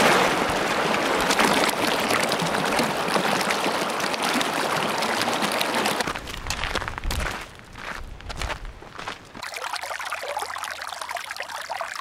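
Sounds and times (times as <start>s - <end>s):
stream splashing over rocks: 0.0s - 6.2s, 9.4s - 12.0s.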